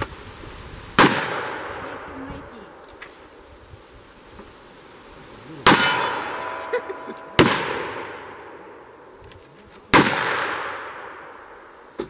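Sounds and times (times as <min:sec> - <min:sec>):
revolver gunshots echoing: 0:01.0 - 0:02.1, 0:05.6 - 0:06.7, 0:07.3 - 0:08.9, 0:09.9 - 0:11.7.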